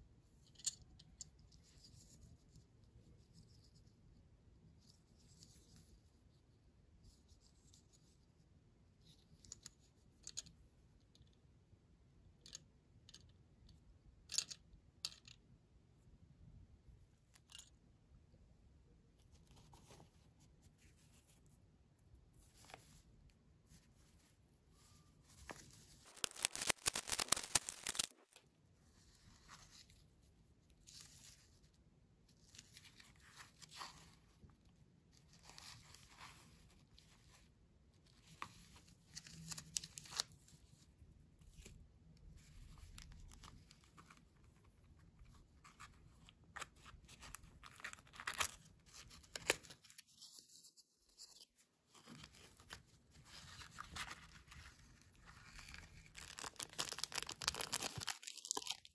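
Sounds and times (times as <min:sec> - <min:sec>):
cellophane crinkling and tearing: 0:25.4 - 0:28.4, 0:47.1 - 0:50.4, 0:53.3 - 0:58.9.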